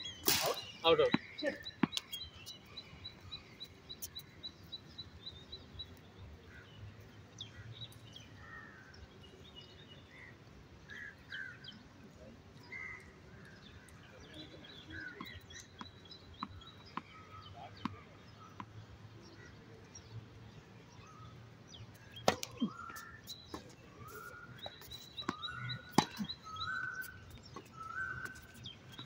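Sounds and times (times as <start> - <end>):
birds chirping: 0.0 - 10.3, 11.0 - 29.0
tennis ball struck by racquet: 22.2 - 22.7, 25.3 - 26.3.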